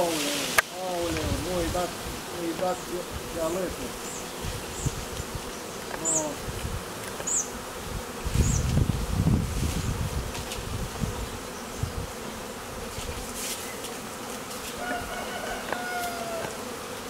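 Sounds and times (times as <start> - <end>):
honeybee swarm buzzing: 0.0 - 17.0.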